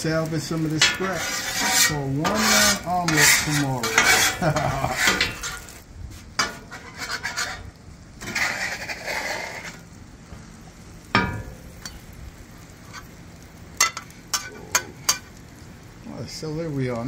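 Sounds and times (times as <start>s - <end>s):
metal spatula scraping griddle: 0.0s - 9.9s, 11.1s - 12.0s, 12.8s - 13.2s, 13.8s - 15.4s
faint sizzle: 0.0s - 17.0s.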